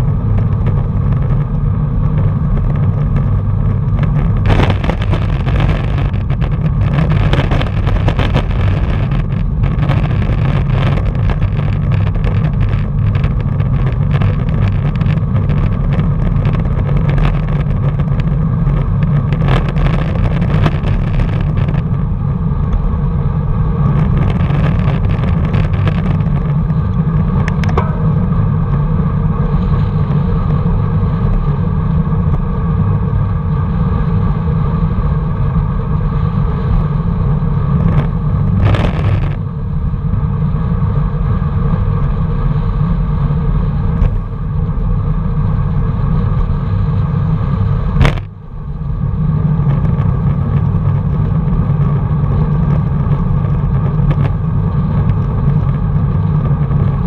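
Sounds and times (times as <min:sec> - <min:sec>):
tyres on tarmac: 0:00.0 - 0:33.9
wind rush: 0:00.0 - 0:57.0
sharp knock: 0:27.5 - 0:28.4.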